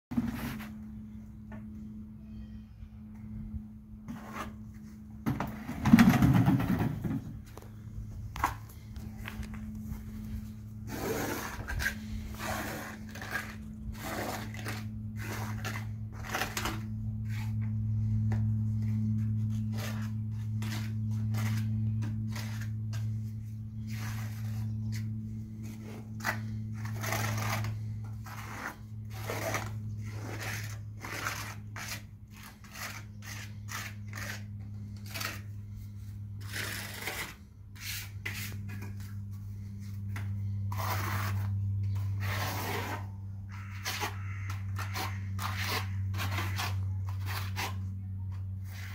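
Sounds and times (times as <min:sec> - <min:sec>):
steady low hum: 0:00.1 - 0:48.9
steel trowel scraping mortar: 0:10.9 - 0:17.6, 0:19.5 - 0:39.0, 0:40.7 - 0:47.9.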